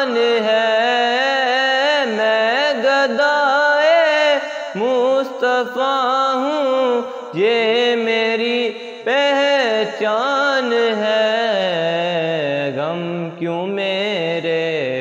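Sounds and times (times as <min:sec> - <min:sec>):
young man singing unaccompanied: 0:00.0 - 0:15.0
short breaths: 0:04.4 - 0:04.8, 0:08.8 - 0:09.1.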